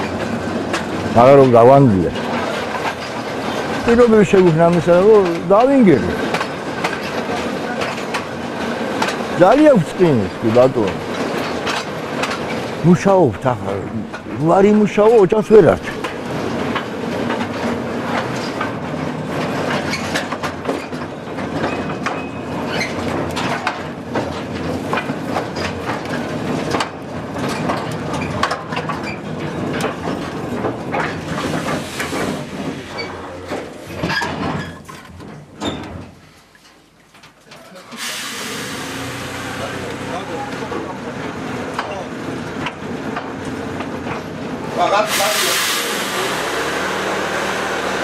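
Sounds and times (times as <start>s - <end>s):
mine transport rattling: 0.0s - 48.0s.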